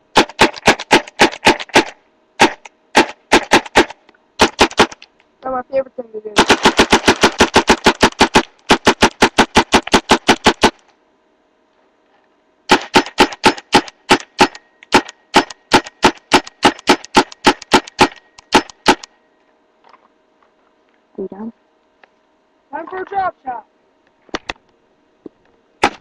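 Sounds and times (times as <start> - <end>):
paintball gun firing rapidly: 0.1 - 5.0, 6.4 - 10.8, 12.7 - 19.1, 25.8 - 26.0.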